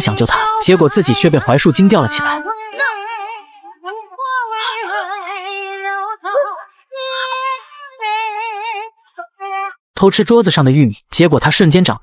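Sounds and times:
woman singing with vibrato: 0.0s - 9.8s.

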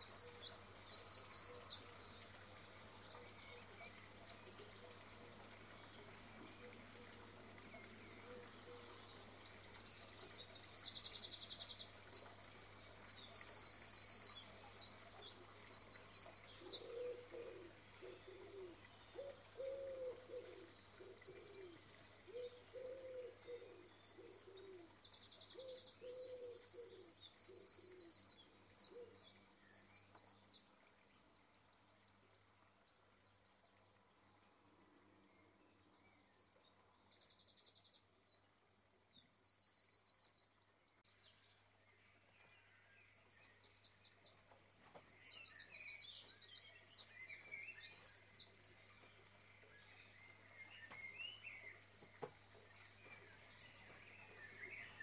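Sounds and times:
birds chirping and trilling: 0.0s - 31.4s, 32.5s - 55.0s
low cooing call: 4.5s - 9.3s, 16.6s - 25.0s, 25.6s - 28.2s.

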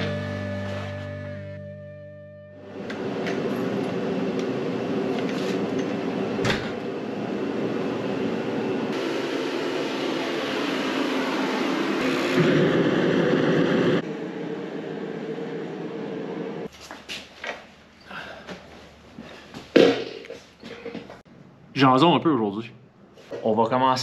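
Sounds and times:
heater fan hum: 2.6s - 19.6s
burner rushing: 8.9s - 16.7s.

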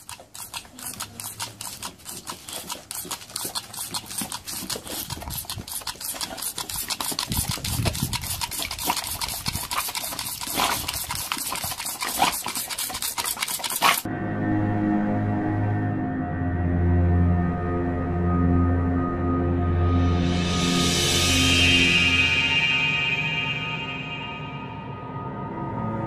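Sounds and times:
dog snapping and gulping water: 0.0s - 14.1s
music: 14.1s - 26.0s.

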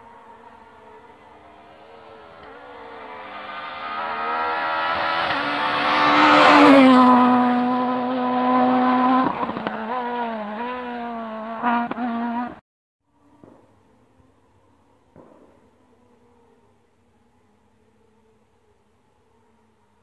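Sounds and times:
rally car engine at speed: 0.0s - 12.6s.

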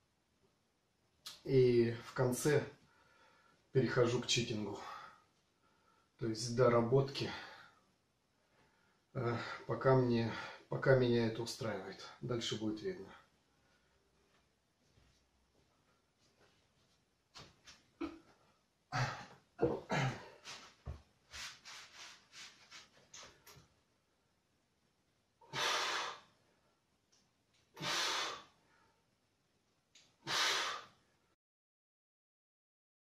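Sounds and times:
man exhaling forcefully: 25.5s - 26.3s, 27.8s - 28.5s, 30.2s - 31.0s.

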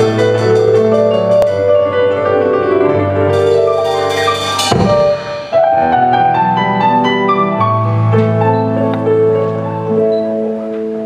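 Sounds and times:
live band playing: 0.0s - 8.8s
keyboard chords: 0.0s - 11.0s
cymbal wash: 3.4s - 6.4s.

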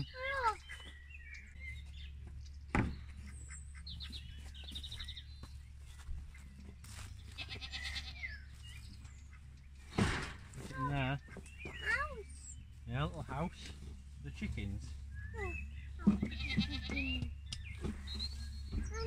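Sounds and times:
small birds trilling: 0.0s - 19.0s.

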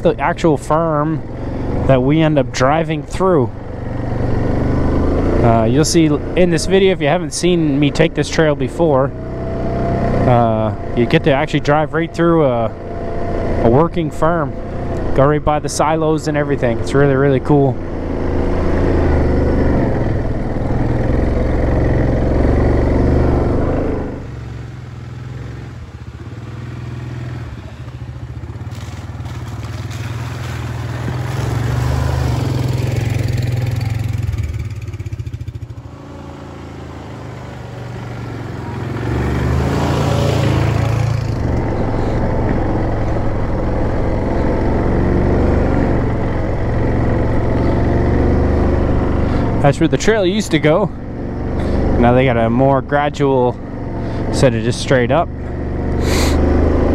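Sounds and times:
atv engine running: 0.0s - 56.9s.

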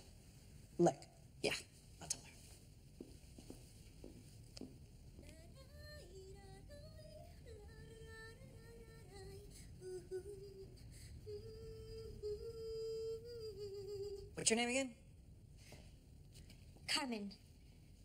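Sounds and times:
woman singing softly: 5.2s - 14.4s.

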